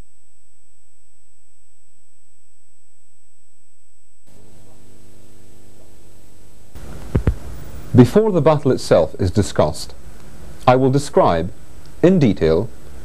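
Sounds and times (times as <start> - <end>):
steady electronic tone: 0.0 - 8.2
tape hiss: 0.0 - 13.0.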